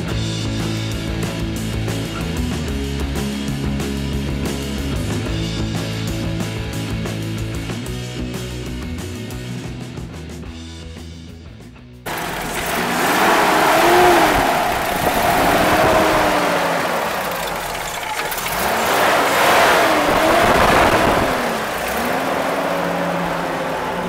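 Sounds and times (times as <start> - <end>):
car engine revving: 12.1 - 24.0.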